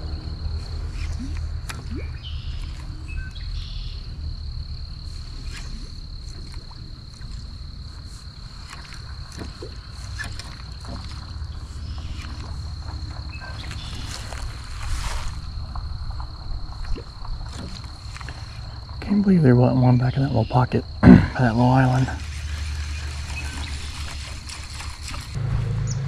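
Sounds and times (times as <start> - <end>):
high-pitched insect trill: 0.0 - 26.0
low rumble: 10.7 - 19.0, 20.8 - 26.0.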